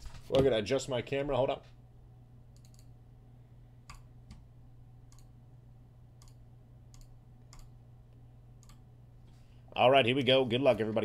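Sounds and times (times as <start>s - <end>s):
steady low hum: 0.0s - 11.0s
computer mouse clicking: 2.5s - 2.9s, 5.1s - 5.3s, 6.2s - 7.8s, 8.6s - 8.8s.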